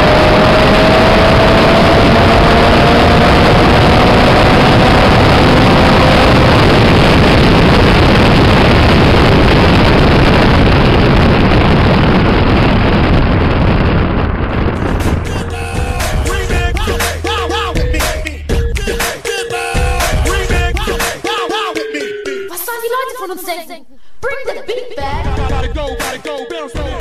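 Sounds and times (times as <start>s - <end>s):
wind roaring on camera: 0.0s - 16.0s
car engine at speed: 0.0s - 18.5s.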